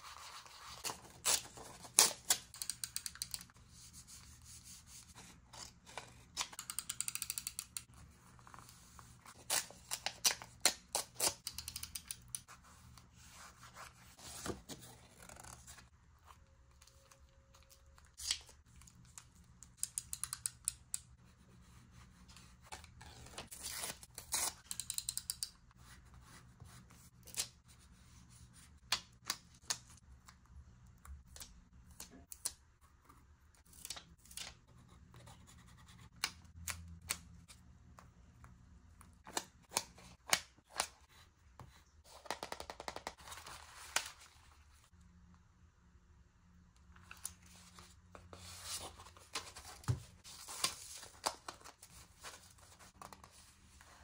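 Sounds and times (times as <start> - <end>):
paper handling sounds: 0.0 - 6.9, 39.2 - 44.9, 46.9 - 54.0.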